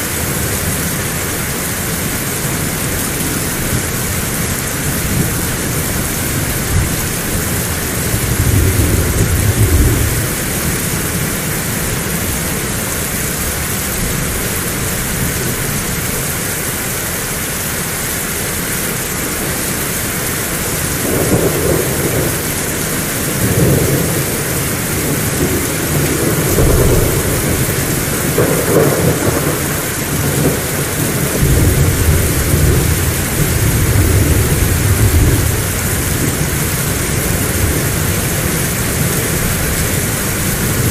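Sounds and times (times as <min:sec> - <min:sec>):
heavy rain falling: 0:00.0 - 0:40.9
rolling thunder: 0:03.6 - 0:12.4, 0:20.9 - 0:40.9.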